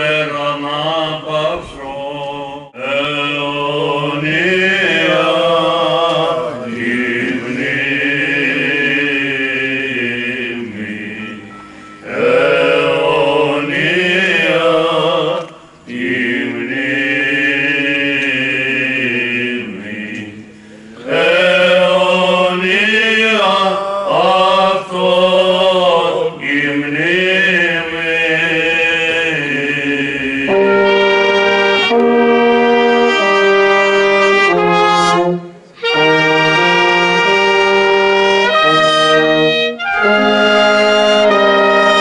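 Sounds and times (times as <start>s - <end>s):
men singing chant: 0.0s - 11.4s, 12.1s - 30.8s
breaths between phrases: 20.5s - 21.0s.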